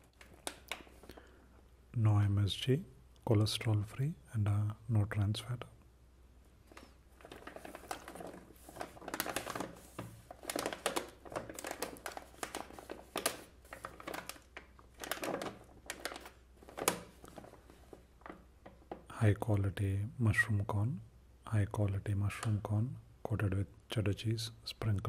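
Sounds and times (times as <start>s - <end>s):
plastic snack bag crinkling: 6.7s - 18.9s.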